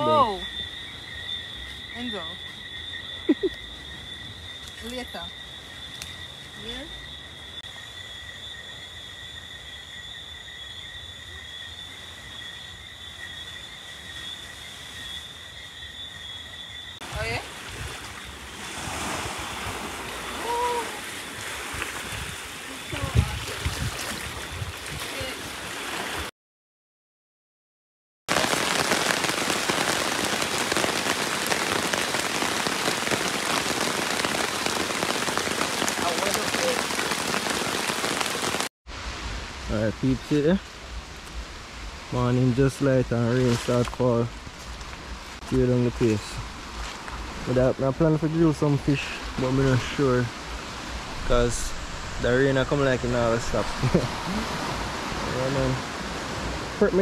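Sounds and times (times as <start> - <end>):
insects trilling: 0.0 - 23.8, 28.5 - 38.5
rain falling: 28.3 - 57.0.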